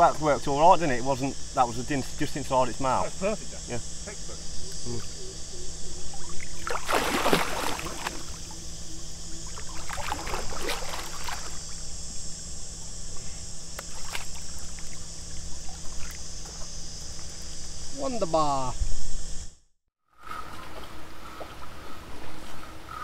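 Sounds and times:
high insect drone: 0.0s - 23.0s
water splashing: 6.1s - 8.6s, 9.4s - 11.7s, 13.9s - 16.6s.

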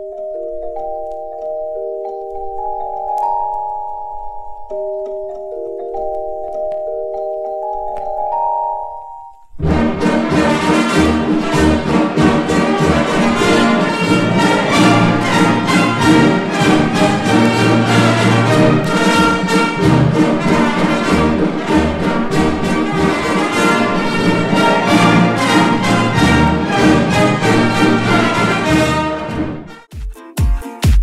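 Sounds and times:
orchestral music with brass: 9.6s - 29.9s.

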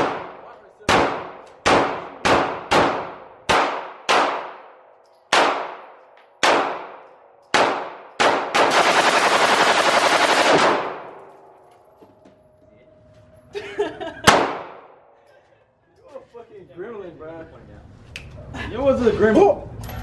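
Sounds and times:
full-automatic gunfire burst: 0.0s - 4.7s, 5.3s - 11.1s, 14.3s - 14.8s
rifle shots with ringing echo: 0.0s - 11.5s, 14.3s - 15.1s.

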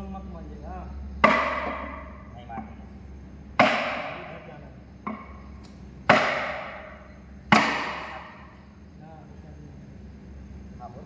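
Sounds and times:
hammer striking metal: 1.2s - 2.2s, 3.6s - 5.4s, 6.1s - 8.5s.

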